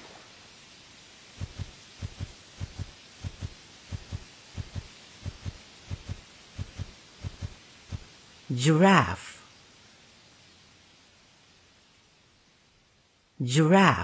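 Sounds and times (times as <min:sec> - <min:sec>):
hooves thudding on ground: 0:01.4 - 0:08.1.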